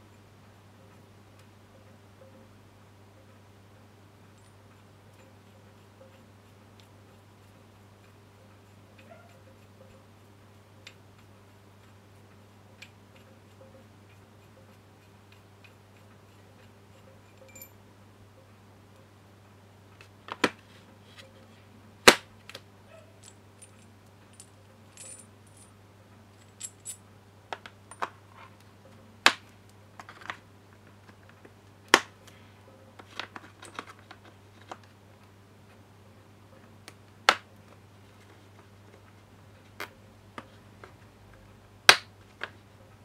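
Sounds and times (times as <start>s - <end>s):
light metallic tinkles: 16.9s - 17.8s, 23.2s - 25.7s, 26.4s - 27.0s
metal parts clinking and clacking: 17.0s - 17.8s, 23.2s - 25.7s, 26.4s - 27.0s, 33.1s - 34.7s.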